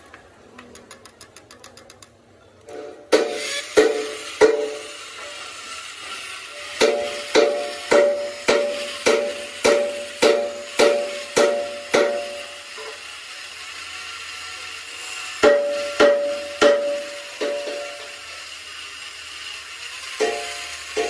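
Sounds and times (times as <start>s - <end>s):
hammer striking metal: 2.7s - 5.0s, 6.6s - 13.0s, 15.4s - 18.1s.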